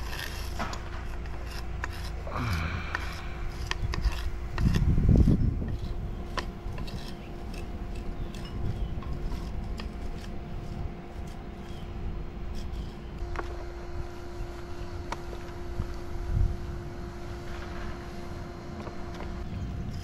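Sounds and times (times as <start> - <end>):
marker scratching on stone: 0.0 - 13.2
faint steady hum: 0.0 - 20.0
loud low rumble: 2.2 - 6.8.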